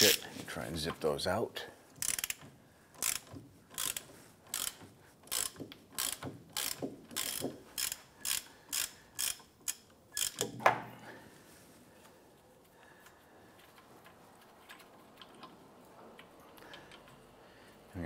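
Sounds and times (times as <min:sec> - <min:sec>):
hand ratchet clicking: 0:00.0 - 0:00.2, 0:02.0 - 0:10.6.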